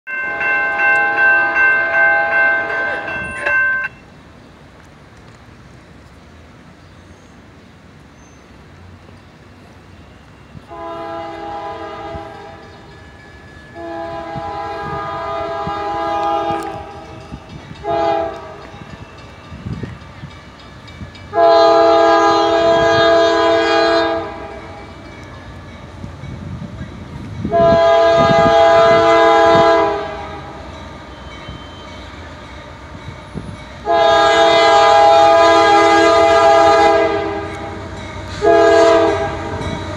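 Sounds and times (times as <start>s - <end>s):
locomotive air horn blasts: 10.7s - 12.6s, 13.7s - 17.0s, 17.8s - 18.7s, 21.3s - 24.6s, 27.5s - 30.6s, 33.8s - 37.7s, 38.3s - 39.7s.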